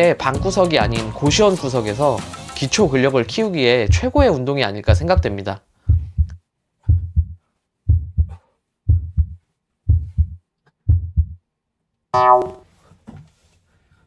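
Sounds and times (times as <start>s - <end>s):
heartbeat thumps: 3.9s - 11.4s.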